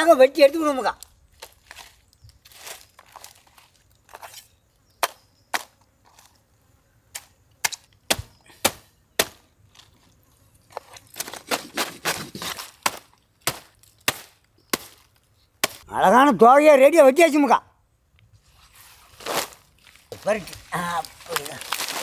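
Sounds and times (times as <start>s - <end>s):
machete chopping: 4.1s - 5.8s, 7.1s - 9.5s, 11.2s - 15.9s.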